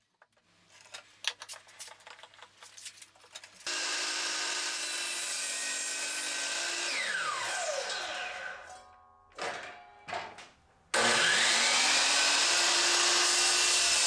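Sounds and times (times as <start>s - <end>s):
miter saw running: 3.7s - 8.2s, 11.0s - 14.0s
saw blade spinning down: 3.7s - 8.8s, 11.0s - 14.0s.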